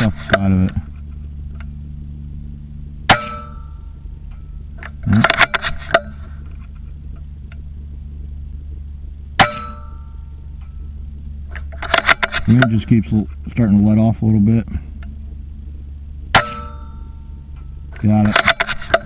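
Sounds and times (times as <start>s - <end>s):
metallic ring: 3.1s - 6.4s, 9.4s - 10.9s, 16.3s - 19.0s.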